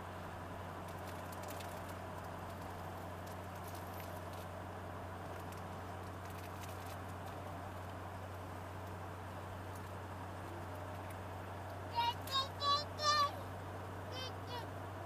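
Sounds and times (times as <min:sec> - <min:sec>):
pickup engine hum in cab: 0:00.0 - 0:15.0
tyre and road noise: 0:00.0 - 0:15.0
faint crackles: 0:00.8 - 0:04.6, 0:05.2 - 0:09.0.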